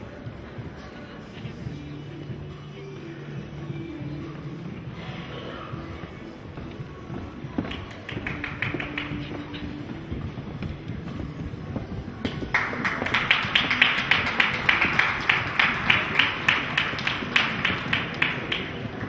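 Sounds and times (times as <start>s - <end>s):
crowd clapping rhythmically: 7.7s - 9.5s, 12.3s - 19.0s.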